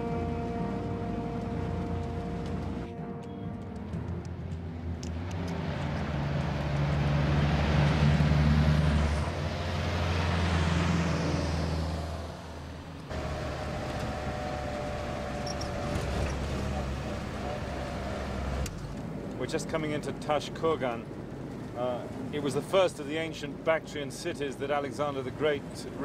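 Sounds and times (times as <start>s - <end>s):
vehicles driving past: 0.0s - 26.0s
pickup running from inside cab: 12.4s - 19.0s.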